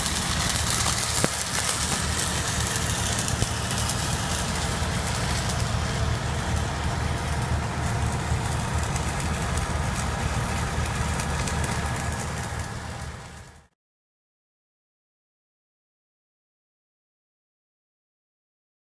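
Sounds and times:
heavy machine engine idling: 0.0s - 13.7s.

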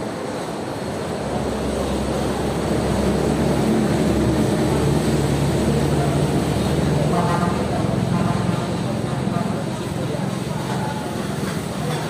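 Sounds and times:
rushing background noise: 0.0s - 12.0s
low motor drone: 1.2s - 9.4s.

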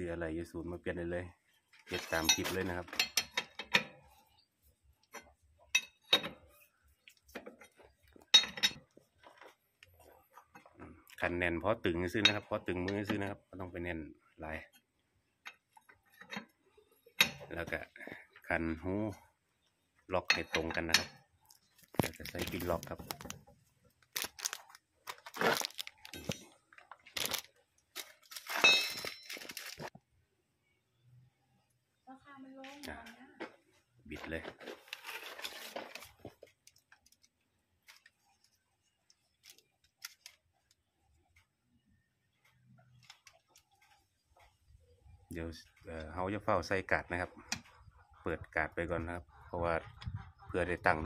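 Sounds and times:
plastic bag crinkling: 21.8s - 29.9s.

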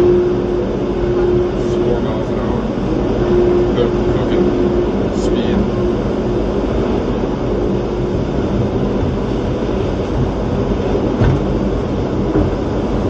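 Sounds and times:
tram mechanical rumble: 0.0s - 13.0s
knock: 11.2s - 11.5s.

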